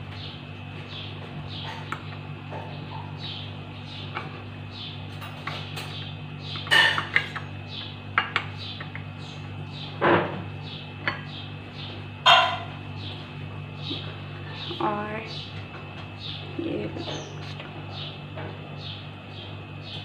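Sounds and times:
glass bowls clinking: 6.7 - 7.5, 12.2 - 12.7.

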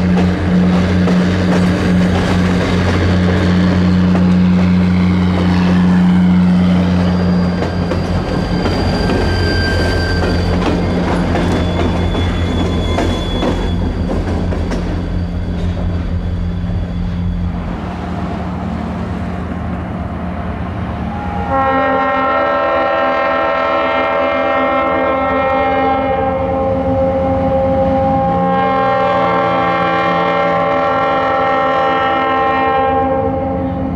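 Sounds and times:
wheels clicking over rail joints: 0.0 - 5.9, 10.1 - 16.0
locomotive engine drone: 0.0 - 33.9
locomotive air horn: 21.1 - 33.9.

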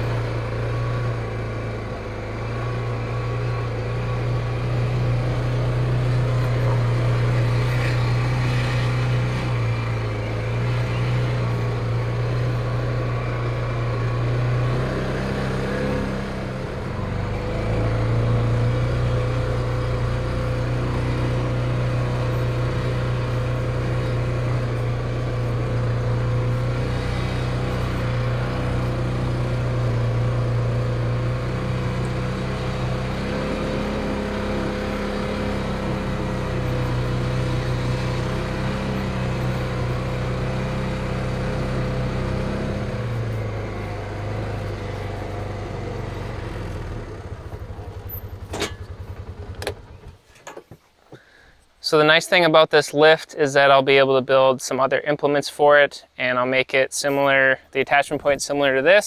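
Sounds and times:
utility vehicle engine running: 0.0 - 52.0.

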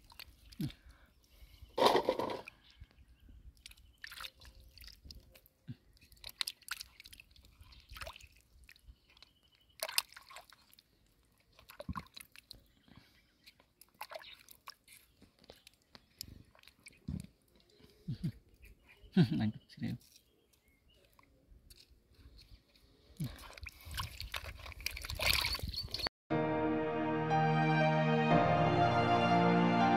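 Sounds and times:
wet squelches: 0.0 - 1.4, 2.4 - 19.1, 19.9 - 25.9
hands splashing in muddy water: 3.6 - 10.9, 23.2 - 25.7.

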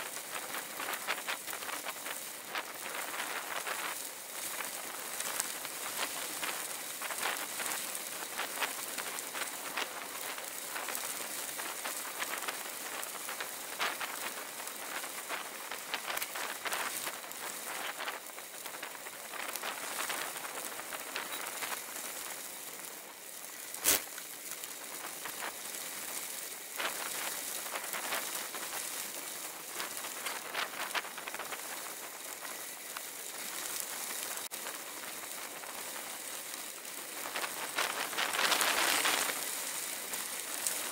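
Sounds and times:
bicycle tyres on gravel: 0.0 - 40.9.

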